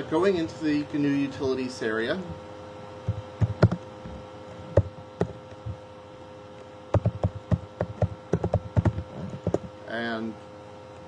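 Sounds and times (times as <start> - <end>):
faint steady hum: 0.0 - 11.0
keyboard typing: 3.1 - 3.8, 6.9 - 9.7.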